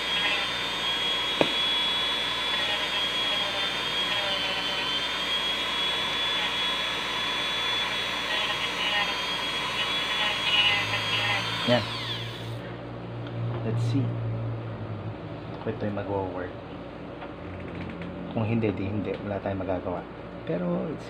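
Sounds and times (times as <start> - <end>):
rotary tool high whine: 0.0 - 12.8.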